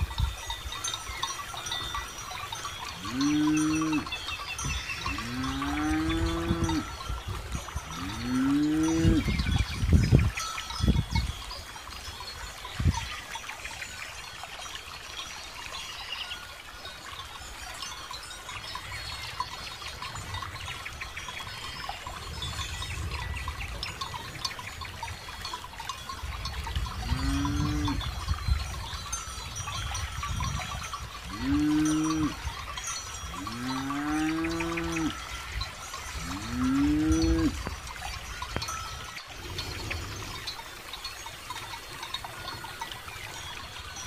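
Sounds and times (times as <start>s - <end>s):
cow tearing and chewing grass: 0.0s - 11.5s, 23.8s - 44.0s
cattle mooing: 3.0s - 4.1s, 31.3s - 32.4s, 33.4s - 35.2s.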